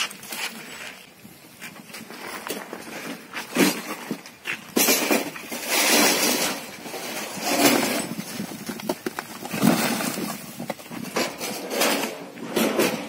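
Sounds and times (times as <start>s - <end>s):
brick wall collapsing: 3.4s - 13.0s
bricks and rubble crashing: 3.4s - 13.0s.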